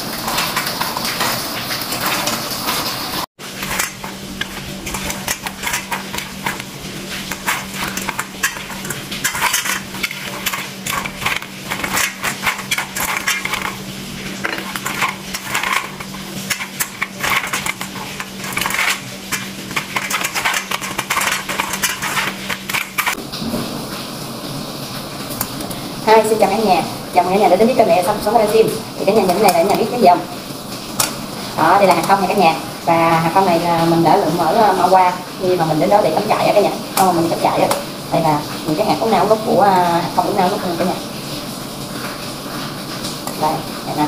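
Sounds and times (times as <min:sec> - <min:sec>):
seeds clattering in metal colander: 0:03.4 - 0:23.2.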